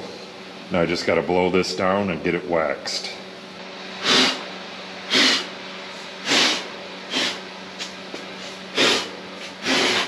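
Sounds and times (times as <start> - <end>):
person blowing forceful puffs: 4.0 - 4.4, 5.1 - 5.5, 6.2 - 7.4, 8.4 - 10.0.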